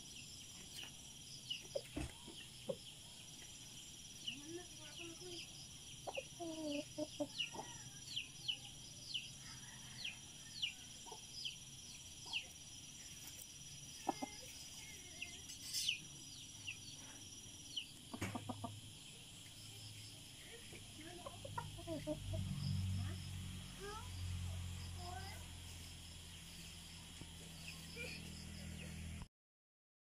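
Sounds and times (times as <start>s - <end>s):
roosters clucking: 0.2s - 29.2s.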